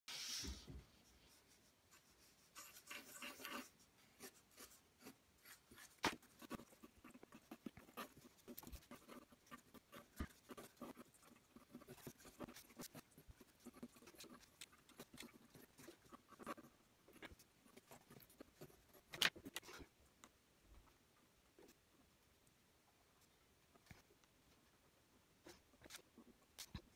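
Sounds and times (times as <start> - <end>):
pencil sketching on paper: 0.1 - 19.7.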